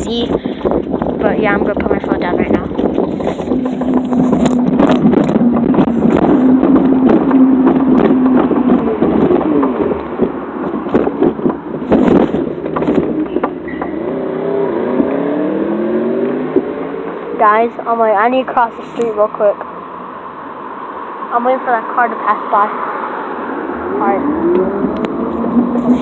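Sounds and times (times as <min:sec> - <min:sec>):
low hum: 0:00.0 - 0:26.0
microphone rubbing against clothing: 0:00.1 - 0:09.5, 0:10.6 - 0:13.5, 0:24.0 - 0:26.0
clicks and knocks: 0:02.7 - 0:14.2.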